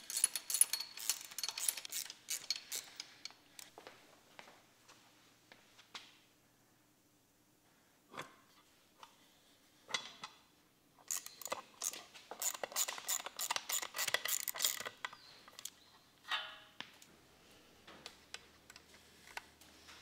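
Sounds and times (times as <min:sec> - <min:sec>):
metal parts rattling: 0:00.0 - 0:03.4, 0:11.0 - 0:15.7
small metal parts clicking: 0:00.0 - 0:03.7, 0:11.0 - 0:15.8.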